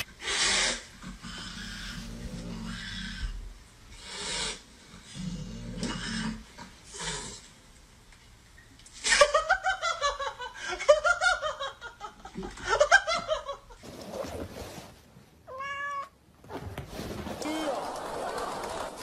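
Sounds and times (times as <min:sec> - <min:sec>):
cat meowing: 0:15.5 - 0:16.2.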